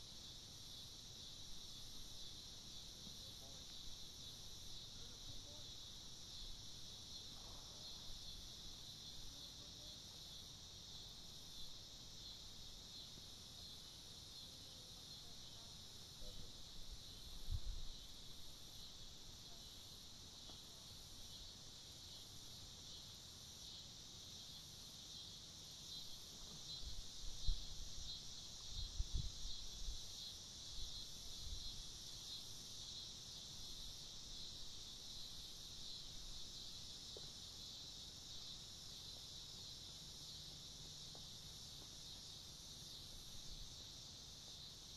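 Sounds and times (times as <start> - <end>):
high-pitched insect chorus: 0.0 - 44.9.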